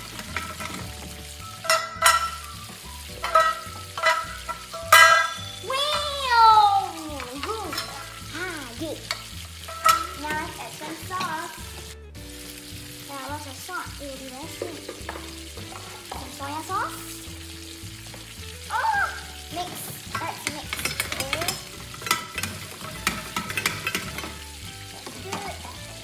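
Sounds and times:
wooden spatula tapping steel pan: 0.0 - 6.2, 9.0 - 10.6, 14.6 - 16.4, 19.6 - 25.6
frying sizzle: 0.0 - 26.0.

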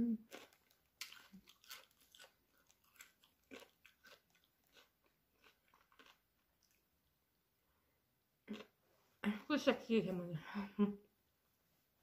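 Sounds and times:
chewing and crunching: 0.2 - 6.9.

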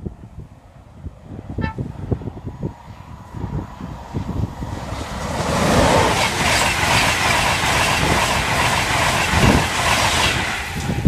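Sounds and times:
train passing wheel and air noise: 0.0 - 11.0.

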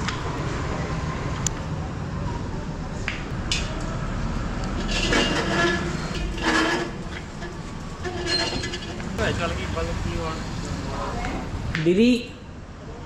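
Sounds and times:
bicycle rattling over tiles: 4.8 - 9.2.

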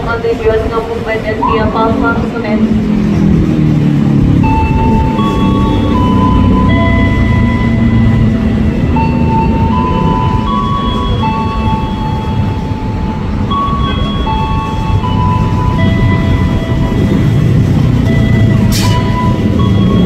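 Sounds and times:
electric train rumble: 0.0 - 20.0
high tones stepping in pitch: 4.1 - 20.0.

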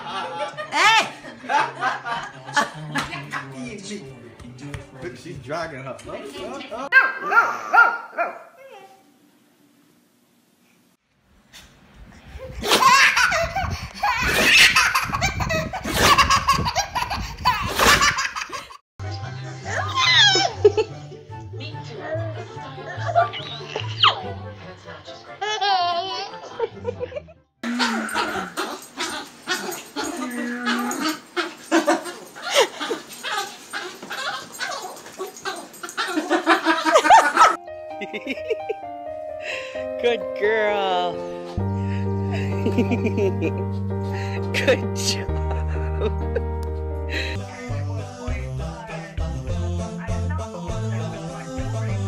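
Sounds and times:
baby laughing hard: 12.6 - 18.8, 25.4 - 26.5, 27.7 - 37.6
dog yipping and whining: 28.1 - 36.3.

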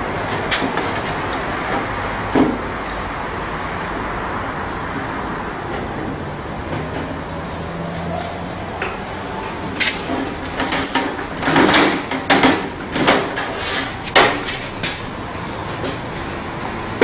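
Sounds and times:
sheet metal scraping and rattling: 7.9 - 17.0.

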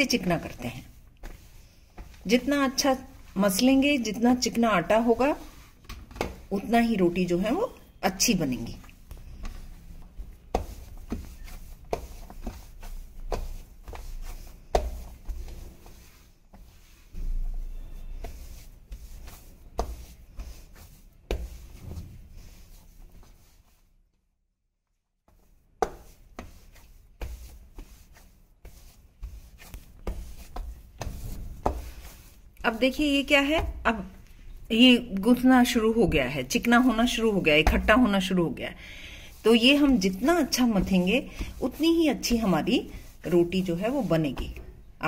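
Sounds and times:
hands kneading dough on steel plate: 0.0 - 24.1, 25.2 - 45.0.

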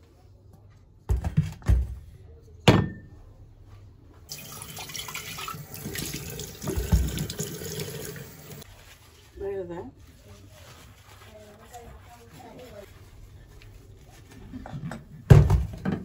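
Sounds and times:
tap running water into sink: 4.3 - 8.6.

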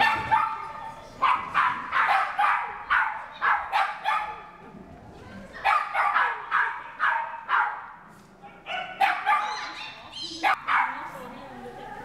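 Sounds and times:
dog barking excitedly: 0.0 - 4.6, 5.6 - 11.1.

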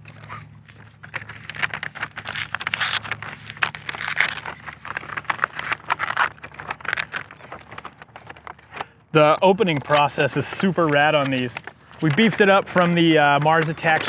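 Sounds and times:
paper crinkling and tearing: 0.0 - 14.0.

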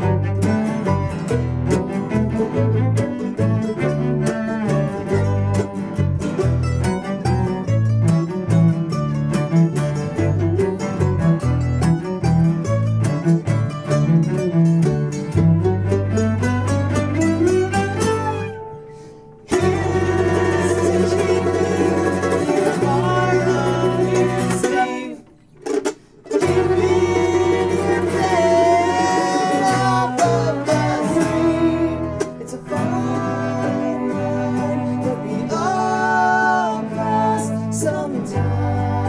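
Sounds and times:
string band playing folk song: 0.0 - 39.0
man singing: 19.5 - 25.3, 26.3 - 39.0.

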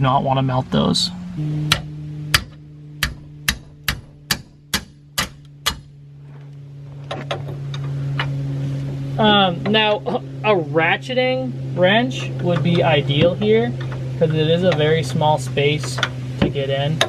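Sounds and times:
steady low hum: 0.0 - 17.0
mallet tapping on wrench: 1.7 - 5.9.

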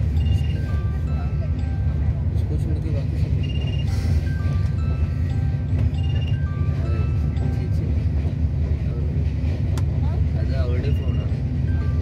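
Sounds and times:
light melody of high notes: 0.0 - 8.6
train coach rumbling: 0.0 - 12.0.

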